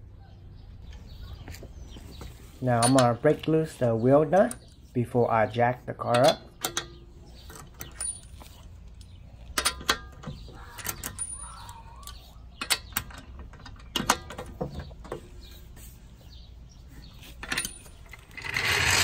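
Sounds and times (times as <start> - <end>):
metal tools clinking on lug nuts: 2.7 - 4.9, 6.0 - 15.4, 17.1 - 19.0.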